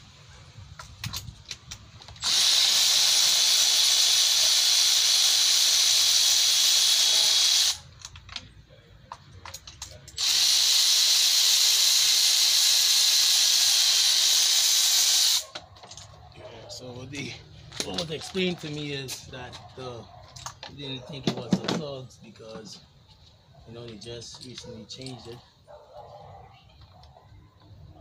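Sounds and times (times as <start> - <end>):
power ratchet whirring: 0.8 - 8.3, 9.5 - 16.1.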